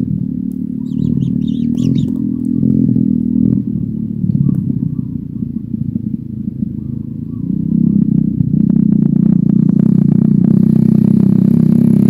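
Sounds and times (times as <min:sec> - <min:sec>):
nestlings purring churr: 0:00.6 - 0:11.0
short high chirps: 0:00.8 - 0:02.1.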